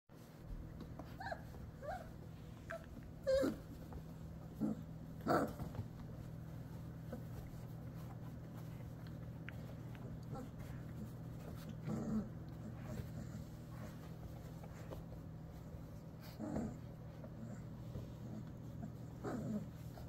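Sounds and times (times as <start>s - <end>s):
steady low hum: 0.2s - 20.0s
puppies whining: 0.9s - 6.1s.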